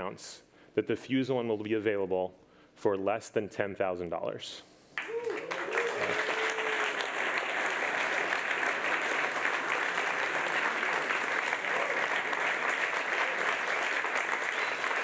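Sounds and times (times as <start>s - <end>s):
whoops from crowd: 5.0s - 7.1s, 11.7s - 12.2s
audience applauding: 5.0s - 15.0s.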